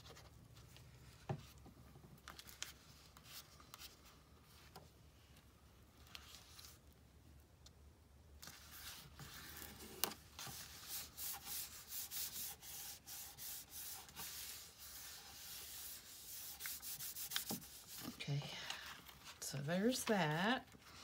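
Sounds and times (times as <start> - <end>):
hands rubbing paper: 8.4 - 20.2.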